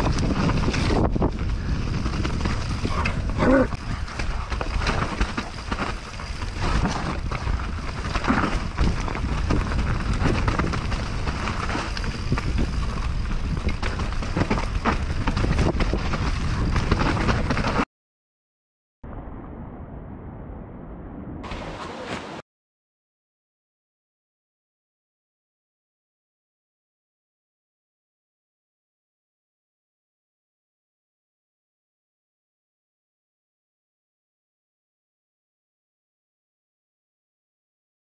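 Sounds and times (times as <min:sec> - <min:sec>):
bike rattling and knocking: 0:00.0 - 0:17.8
wind on microphone: 0:00.0 - 0:17.8
bike tyres rumbling over dirt: 0:00.0 - 0:17.9.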